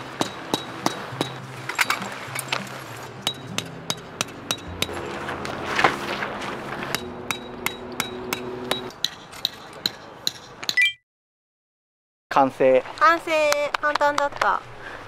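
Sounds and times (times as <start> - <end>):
sharp metallic taps: 6.9 - 10.8.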